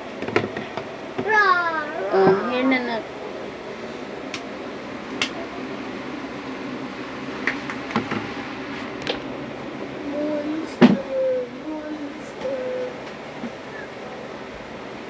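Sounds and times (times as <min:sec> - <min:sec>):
low steady hum: 0:00.0 - 0:15.0
child's voice: 0:01.2 - 0:03.1, 0:10.0 - 0:13.0.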